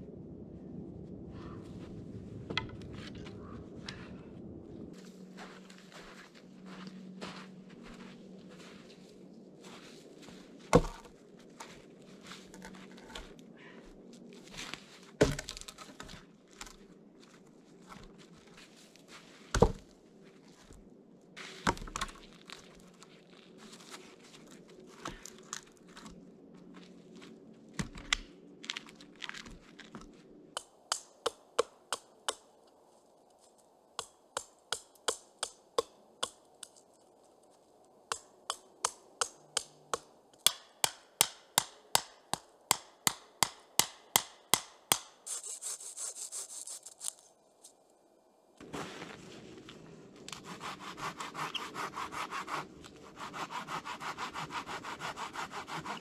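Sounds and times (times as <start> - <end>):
footsteps crunching in snow: 4.9 - 13.4, 14.0 - 15.2, 16.1 - 19.5, 21.4 - 27.7, 48.6 - 50.0
logs thudding on snowy ground: 10.6 - 11.1, 14.6 - 16.8, 19.5 - 19.9, 21.6 - 22.4
hatchet chopping a stick: 30.6 - 32.4, 34.0 - 36.4, 38.1 - 45.2.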